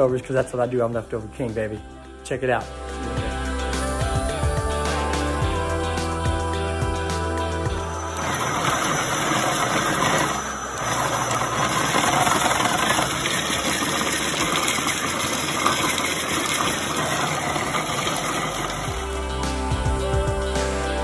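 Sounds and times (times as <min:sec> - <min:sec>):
food processor motor whirring: 0:08.2 - 0:19.4.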